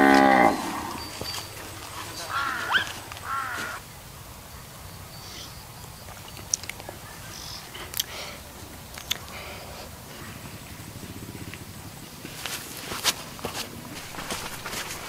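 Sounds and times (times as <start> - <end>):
cow mooing: 0.0 - 1.1
sharp clicks: 8.9 - 9.4.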